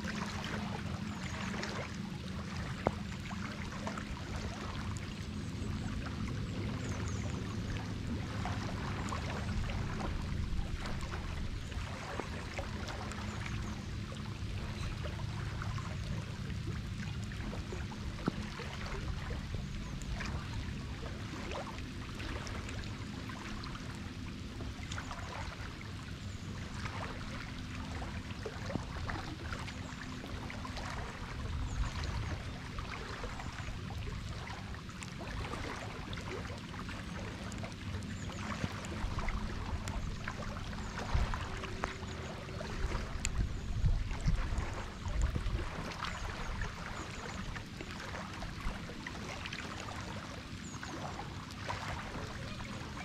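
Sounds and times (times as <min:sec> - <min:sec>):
rain falling on water: 0:00.0 - 0:53.0.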